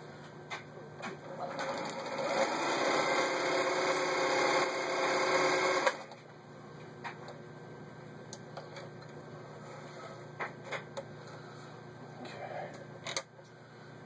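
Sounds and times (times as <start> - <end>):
faint low hum: 6.2 - 14.0.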